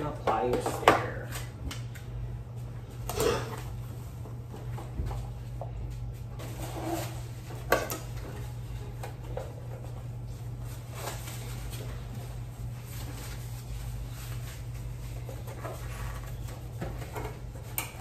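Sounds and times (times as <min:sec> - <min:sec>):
steady low hum: 0:00.0 - 0:18.0
plastic rustling: 0:04.5 - 0:18.0.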